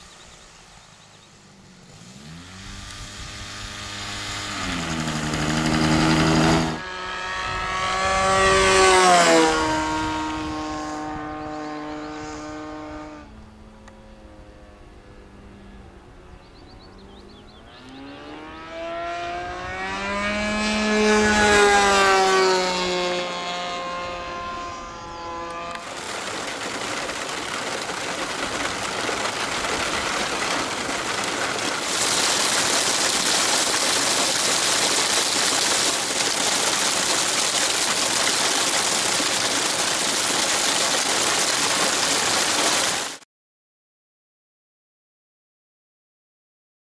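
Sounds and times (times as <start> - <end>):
model plane engine passing overhead: 0.0 - 43.2
heavy rain pelting grass: 3.5 - 6.8, 25.8 - 43.2.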